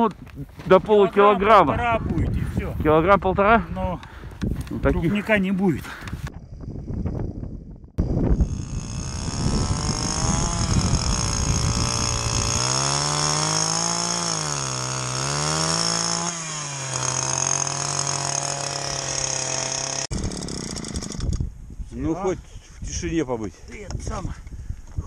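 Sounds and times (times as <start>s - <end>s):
ice auger engine drilling: 8.4s - 21.4s.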